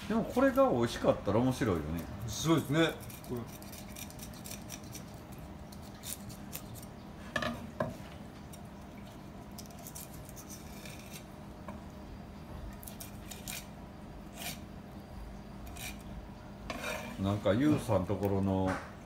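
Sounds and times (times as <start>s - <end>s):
steady low hum: 0.0s - 19.0s
knife scraping on cutting board: 2.9s - 6.9s, 9.6s - 11.3s, 12.8s - 13.7s, 14.3s - 14.7s, 15.6s - 16.1s, 16.7s - 17.5s.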